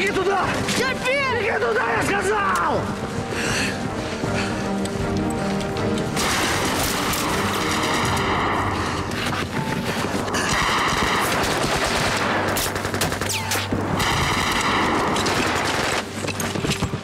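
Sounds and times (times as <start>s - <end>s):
machine-gun fire: 10.4s - 16.1s.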